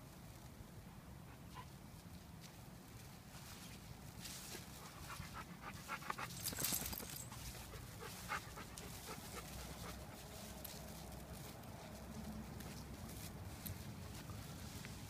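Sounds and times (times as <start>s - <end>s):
dog panting and sniffing: 4.7s - 10.6s.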